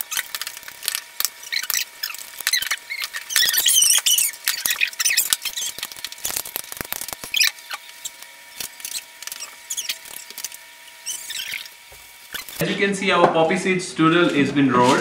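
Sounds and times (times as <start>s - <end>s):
short high squeaks: 1.2s - 12.6s.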